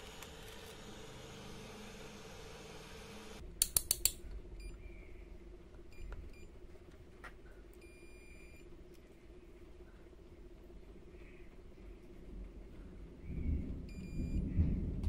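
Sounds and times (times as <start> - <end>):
sharp clicks: 3.6 - 4.2
multimeter beeping: 7.8 - 8.7.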